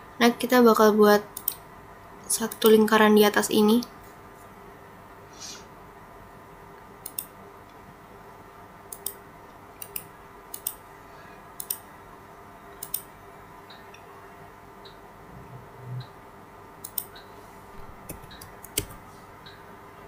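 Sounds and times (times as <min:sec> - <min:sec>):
faint steady hum: 0:00.0 - 0:20.0
computer mouse clicking: 0:01.4 - 0:01.6, 0:02.5 - 0:02.8, 0:07.0 - 0:07.3, 0:08.9 - 0:09.2, 0:09.8 - 0:10.8, 0:11.6 - 0:11.8, 0:12.8 - 0:13.1, 0:16.8 - 0:17.3, 0:18.0 - 0:19.6.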